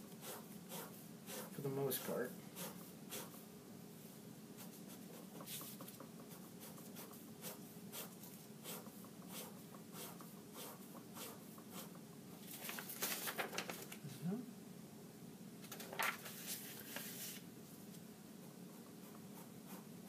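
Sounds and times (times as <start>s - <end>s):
pen scratching on paper: 0.0s - 3.4s, 4.6s - 12.0s, 18.4s - 20.0s.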